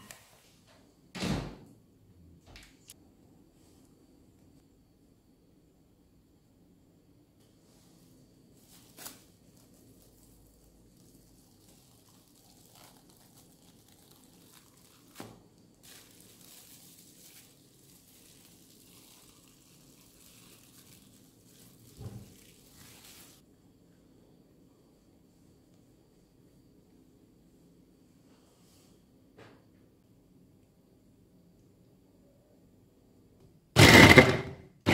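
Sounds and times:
cling film crinkling: 8.6s - 23.4s.

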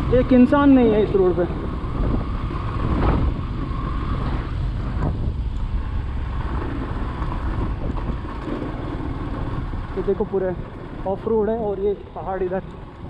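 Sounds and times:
wind rush on microphone: 0.0s - 11.1s
motorcycle engine running: 0.0s - 13.0s.

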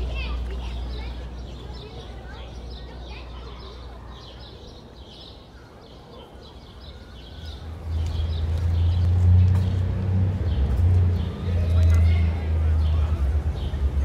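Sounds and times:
faint murmur of voices: 0.0s - 7.7s, 11.2s - 14.0s
small birds chirping: 0.0s - 14.0s.

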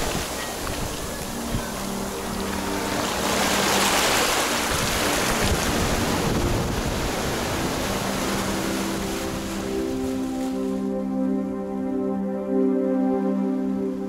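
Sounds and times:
waves washing onto beach: 0.0s - 10.9s.

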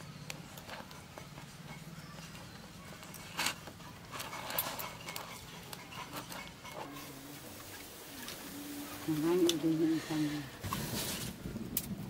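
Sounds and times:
dough kneaded in metal bowl: 0.0s - 11.9s.

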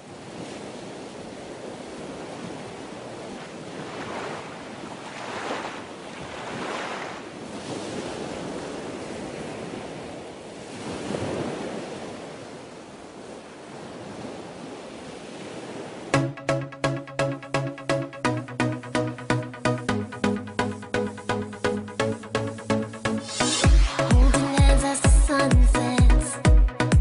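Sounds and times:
wind on microphone: 0.0s - 16.1s.

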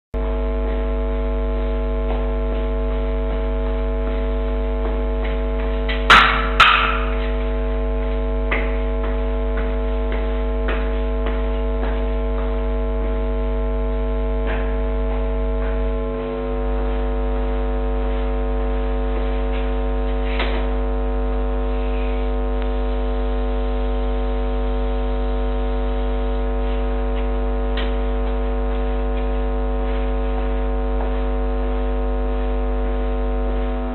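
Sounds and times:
electrical mains hum: 0.2s - 33.9s
steady electronic tones: 0.2s - 33.9s
sharp bangs: 6.1s - 7.2s.

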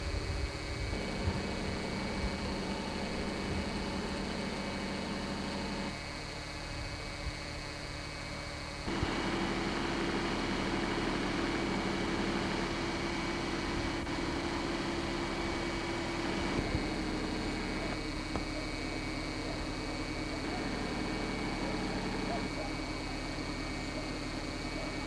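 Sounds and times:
mechanical hum with hiss: 0.0s - 25.0s.

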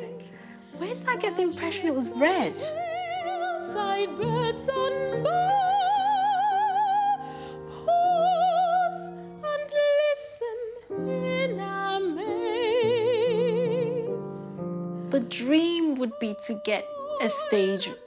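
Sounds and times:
soprano singing opera: 0.0s - 14.4s, 15.2s - 18.0s.

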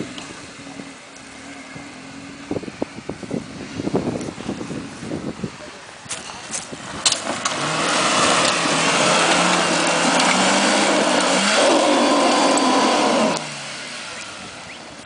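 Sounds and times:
engine revving hard: 7.2s - 14.8s.

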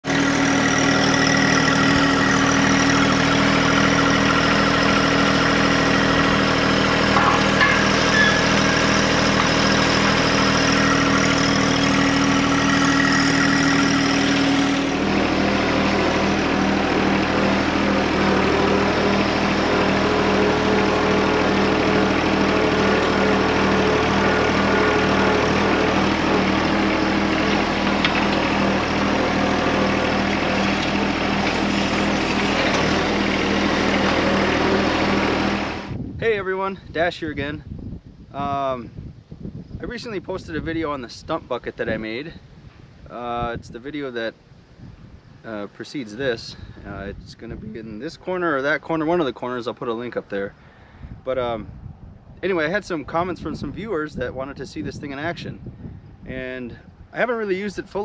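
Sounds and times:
tractor diesel engine running: 0.0s - 36.0s, 52.4s - 58.0s.

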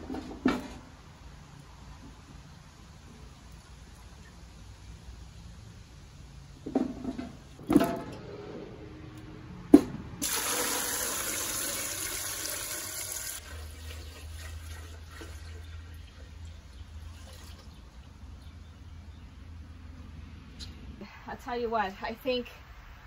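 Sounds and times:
water pouring into a pot: 10.2s - 15.7s.

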